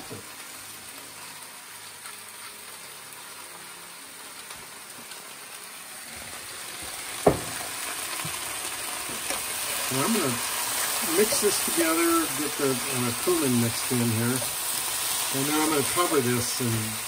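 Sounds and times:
potatoes sizzling in pan: 0.0s - 17.0s
sharp knock: 7.2s - 7.6s.

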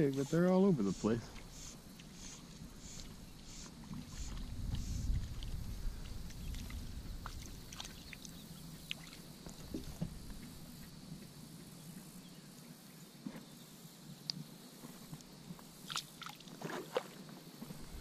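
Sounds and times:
wind rumble on microphone: 2.6s - 8.9s, 17.6s - 18.0s.

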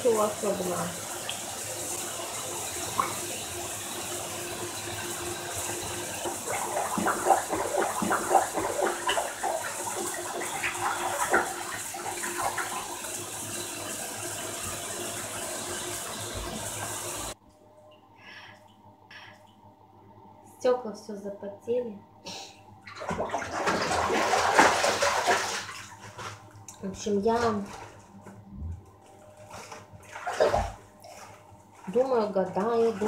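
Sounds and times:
water running from bath tap: 0.0s - 17.4s, 22.9s - 27.9s, 30.0s - 33.0s.

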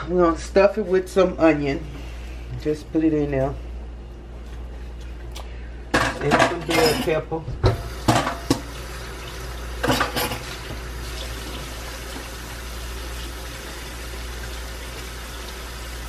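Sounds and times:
water running from a tap: 7.8s - 16.0s.

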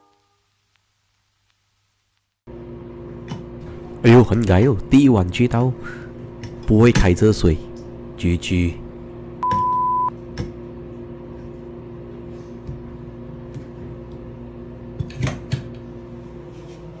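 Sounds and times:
steady low hum: 2.5s - 15.0s
loud steady beep: 9.4s - 10.1s.

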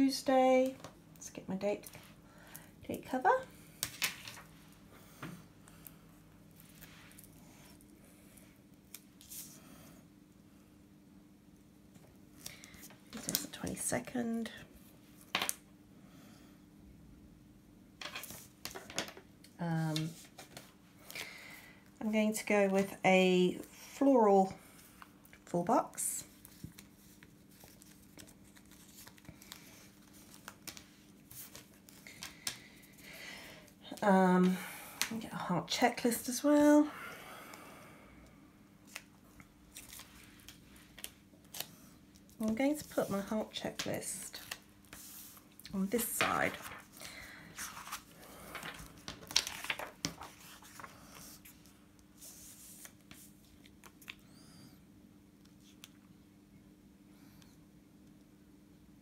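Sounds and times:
sticker sheets rustling: 42.4s - 53.7s.

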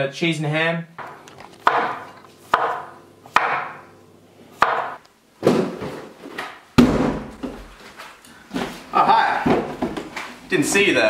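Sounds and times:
knife chopping on wooden board: 1.6s - 3.9s, 4.6s - 5.7s.

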